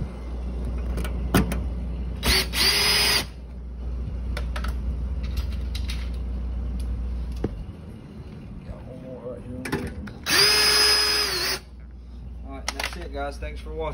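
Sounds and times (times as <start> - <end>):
steady low hum: 0.0 - 13.9
cordless drill whirring: 2.2 - 3.4, 10.2 - 11.7.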